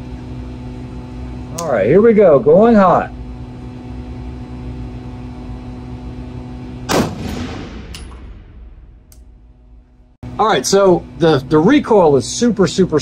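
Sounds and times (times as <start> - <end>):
steady low hum: 0.0 - 13.0
rifle shot ringing: 6.9 - 9.1
light click: 9.1 - 9.3.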